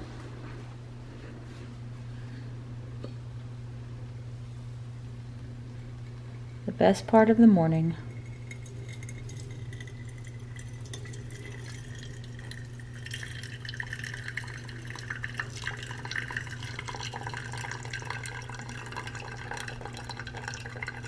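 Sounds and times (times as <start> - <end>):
steady low hum: 0.0 - 21.0
coffee dripping into glass carafe: 8.1 - 21.0.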